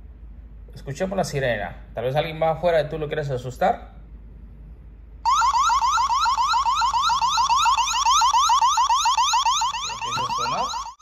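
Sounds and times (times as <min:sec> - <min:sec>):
electronic alarm whooping: 0:05.2 - 0:11.0.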